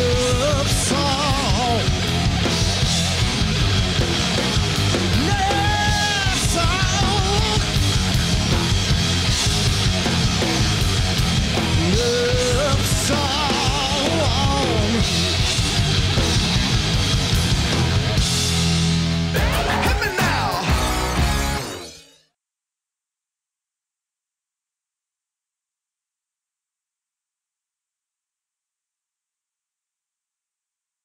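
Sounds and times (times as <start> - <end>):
man singing: 0.0 - 2.0, 5.1 - 7.7, 11.7 - 15.2, 19.4 - 20.9
live rock band playing: 0.0 - 22.0.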